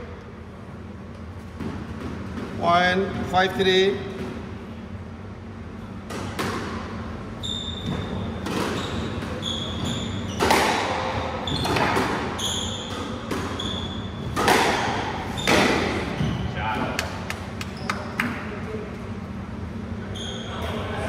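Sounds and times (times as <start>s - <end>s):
shoes squeaking on wooden floor: 7.4s - 10.5s, 11.4s - 14.3s
squash ball hits ringing: 9.7s - 16.4s.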